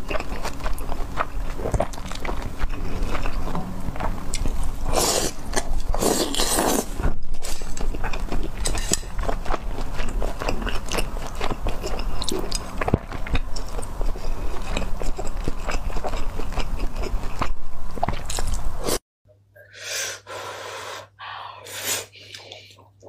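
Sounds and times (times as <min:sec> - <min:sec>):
wet chewing: 0:00.0 - 0:18.6
slurping noodles: 0:04.9 - 0:07.8.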